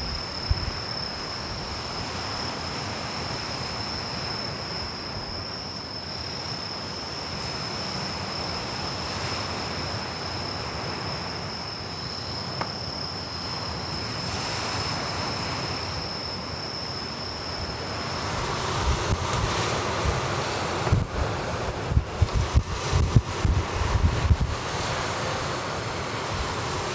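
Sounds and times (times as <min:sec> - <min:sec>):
insect trilling: 0:00.0 - 0:26.9
sea waves washing on shore: 0:17.4 - 0:26.9.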